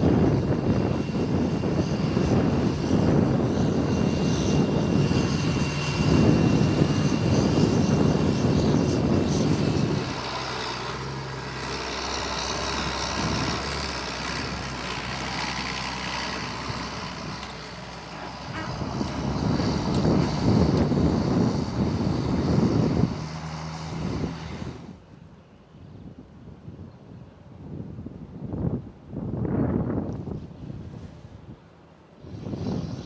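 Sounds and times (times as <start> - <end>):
tractor engine working hard: 0.0 - 25.0
quieter steady tractor engine: 0.0 - 26.3.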